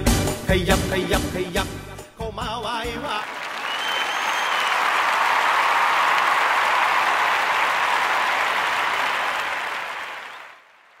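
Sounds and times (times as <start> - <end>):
dense applause: 3.0 - 11.0.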